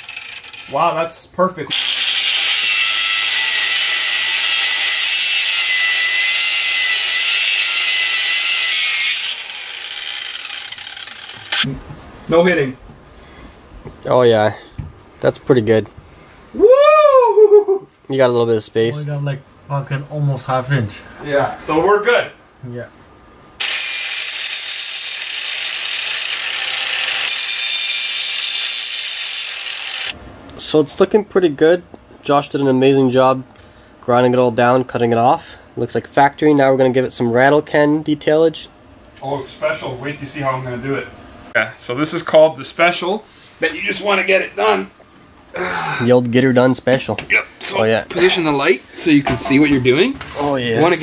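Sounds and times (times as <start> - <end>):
angle grinder cutting steel: 0.0 - 0.9, 1.7 - 11.7, 23.6 - 30.2.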